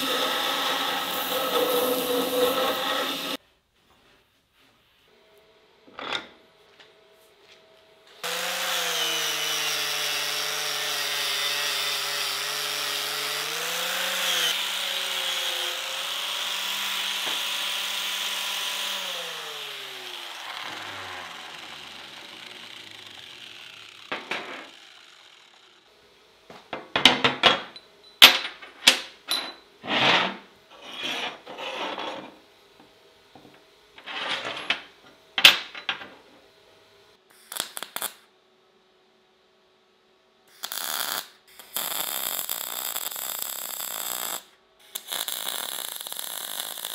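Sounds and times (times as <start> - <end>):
angle grinder running: 0.0 - 3.4, 8.2 - 25.9.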